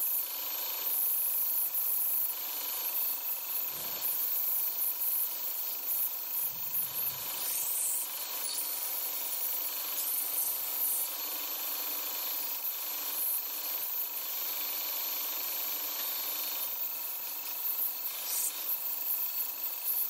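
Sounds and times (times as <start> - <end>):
belt grinder grinding knife blade: 6.4 - 11.1, 17.4 - 18.9.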